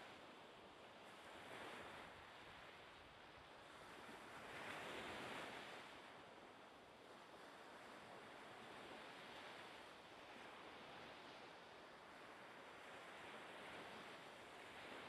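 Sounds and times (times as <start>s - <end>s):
sea waves: 0.0s - 15.0s
wind: 0.0s - 15.0s.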